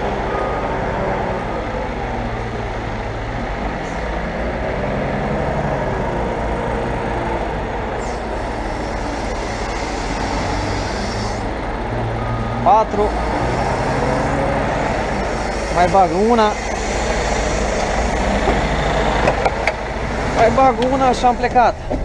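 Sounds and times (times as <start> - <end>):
diesel loader engine working: 0.0 - 22.0
truck engine running: 0.0 - 22.0
reversing beeper: 8.0 - 17.8.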